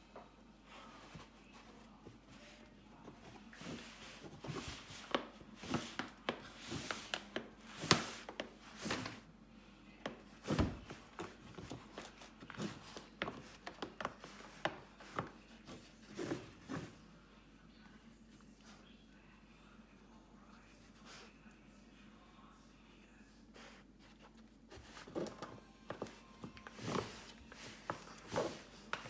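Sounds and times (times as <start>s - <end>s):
puppy rummaging through toys: 23.6s - 29.0s.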